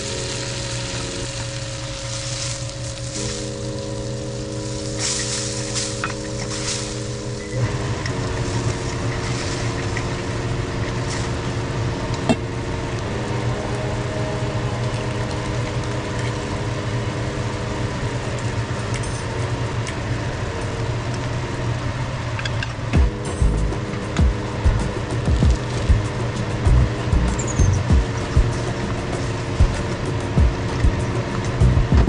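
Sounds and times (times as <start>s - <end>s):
sauce sizzling in a wok: 0.0s - 7.6s
low mechanical hum: 0.0s - 32.0s.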